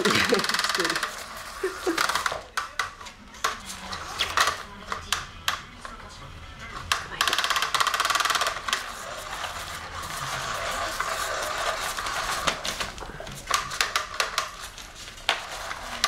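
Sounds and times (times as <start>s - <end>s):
kitten paws scratching and tapping: 6.8s - 16.0s.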